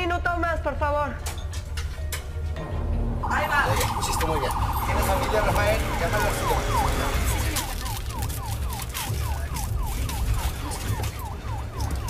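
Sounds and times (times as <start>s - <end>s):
engine and road rumble: 1.6s - 12.0s
ambulance siren: 3.2s - 12.0s.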